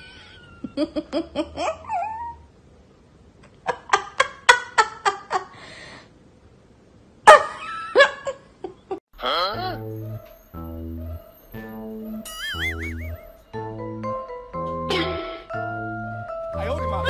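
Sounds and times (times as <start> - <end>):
dog yipping and whining: 1.8 - 2.5.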